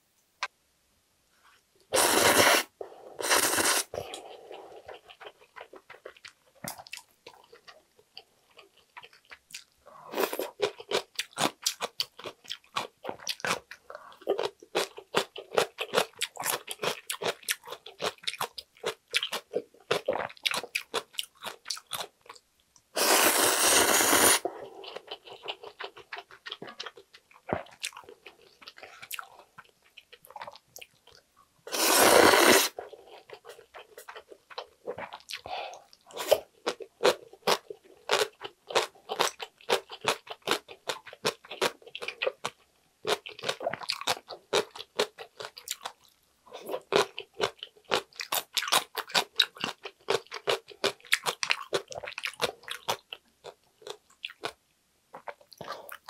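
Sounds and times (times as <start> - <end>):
loud slurp: 2.0 - 3.9, 23.0 - 24.4, 31.7 - 32.8
wet chewing and crunching: 4.1 - 22.4, 24.8 - 31.2, 32.9 - 56.0.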